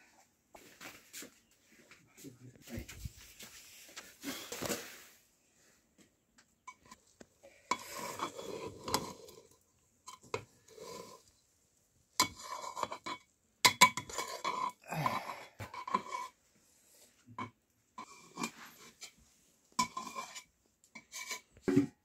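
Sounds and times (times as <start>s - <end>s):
dishes and utensils clinking: 19.8s - 21.9s.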